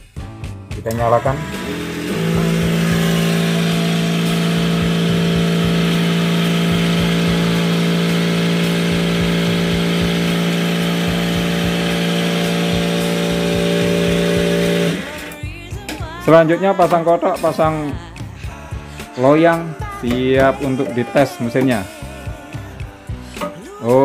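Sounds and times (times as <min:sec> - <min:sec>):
small electric motor humming: 0:00.9 - 0:15.5.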